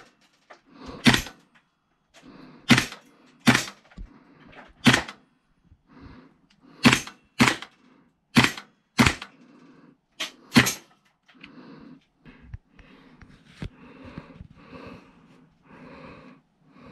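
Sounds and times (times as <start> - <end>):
sharp cracks: 2.7 - 4.0, 4.8 - 5.2, 6.8 - 7.8, 8.4 - 9.4.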